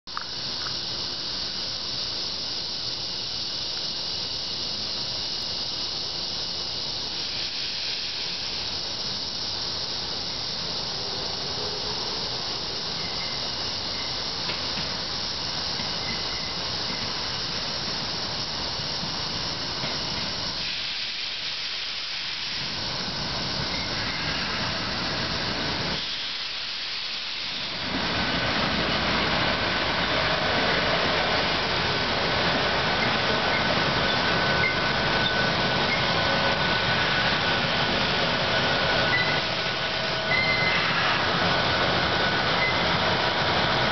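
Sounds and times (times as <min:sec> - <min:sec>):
electric train approaching: 0:00.1 - 0:43.9
steady hiss: 0:00.1 - 0:43.9
thin high squeal: 0:39.0 - 0:41.2.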